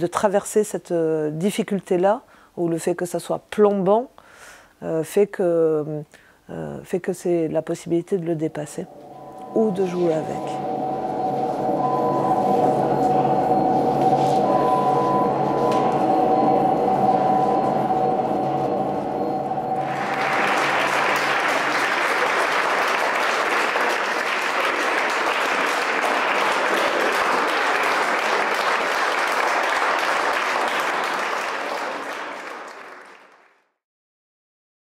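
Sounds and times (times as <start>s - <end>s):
audience applauding: 9.2s - 33.7s.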